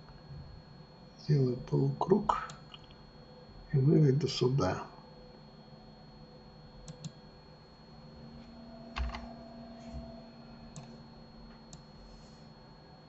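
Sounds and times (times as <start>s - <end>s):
faint steady hum: 0.0s - 13.0s
keyboard and mouse clicks: 6.9s - 7.2s, 9.0s - 9.3s.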